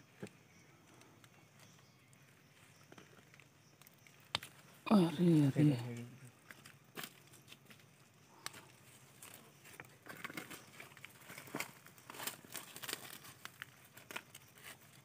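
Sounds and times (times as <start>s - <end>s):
dry leaves rustling: 8.8s - 15.0s.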